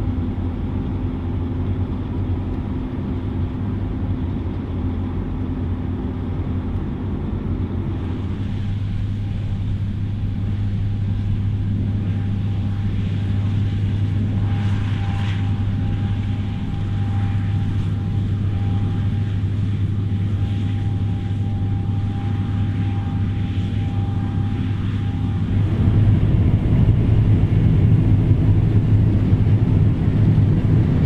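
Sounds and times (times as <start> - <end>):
combine harvester humming: 0.0 - 31.0
thin even whine: 13.1 - 28.8.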